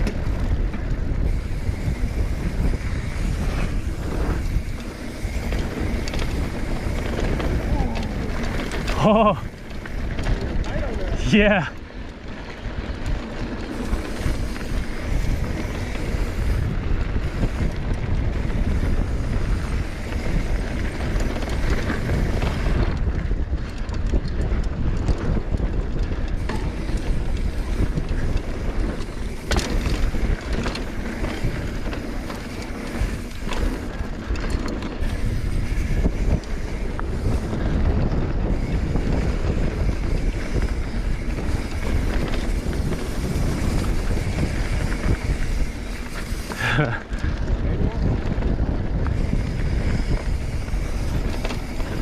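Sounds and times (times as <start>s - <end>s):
bike tyres rolling over dirt: 0.0s - 52.0s
wind rushing over microphone: 0.0s - 52.0s.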